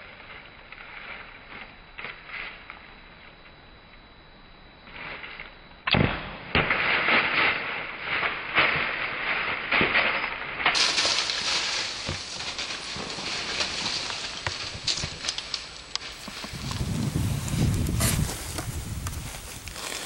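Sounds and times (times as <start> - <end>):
bow shot crack: 5.9 - 7.6
deer running through dry leaves: 7.0 - 20.0.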